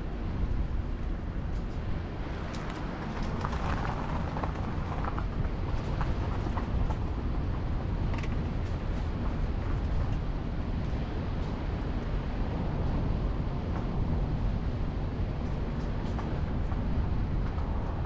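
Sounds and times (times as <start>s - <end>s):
car road noise: 0.0s - 18.0s
wind buffeting microphone: 0.0s - 18.0s
light ticks and crackles: 1.4s - 12.1s.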